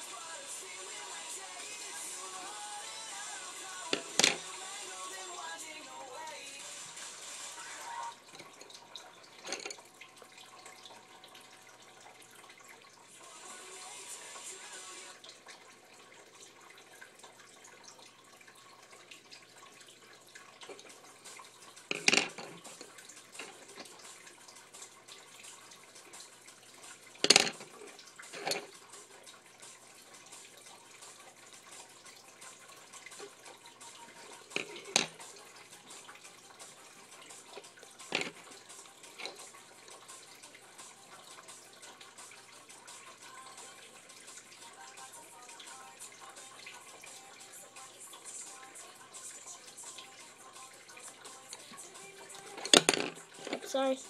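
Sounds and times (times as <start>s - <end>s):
pencils clacking on wood: 21.9s - 22.8s, 27.2s - 27.8s, 34.5s - 35.2s, 38.1s - 38.4s, 52.4s - 53.7s.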